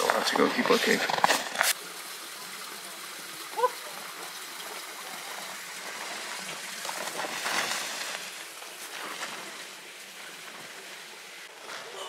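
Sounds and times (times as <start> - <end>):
footsteps crunching on snow: 6.0 - 12.0.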